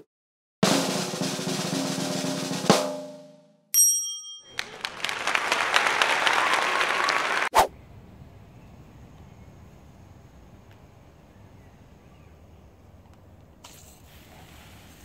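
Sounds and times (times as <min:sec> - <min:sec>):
drum roll: 0:00.6 - 0:03.3
bright chime: 0:03.8 - 0:04.7.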